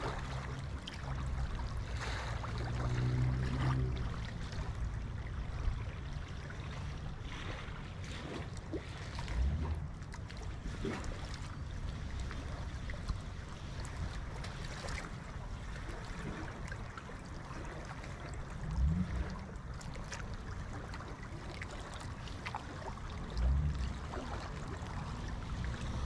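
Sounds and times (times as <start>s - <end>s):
river water rushing: 0.0s - 10.0s, 17.4s - 26.0s.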